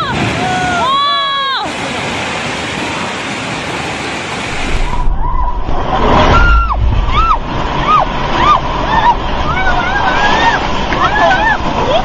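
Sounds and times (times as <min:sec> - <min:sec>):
landslide rushing noise: 0:00.0 - 0:12.0
low rumble: 0:04.4 - 0:12.0.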